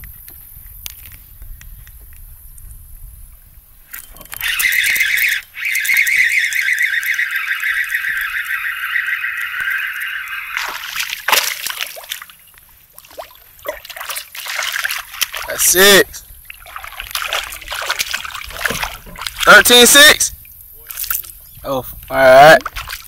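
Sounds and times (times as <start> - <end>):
fishing reel whirring: 3.9 - 11.3
fish splashing in water: 4.4 - 15.6, 16.4 - 19.5.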